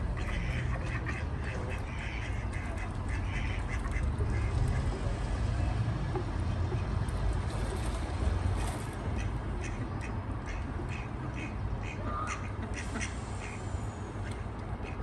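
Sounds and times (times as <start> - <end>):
ducks quacking: 0.1 - 5.1, 9.1 - 13.6.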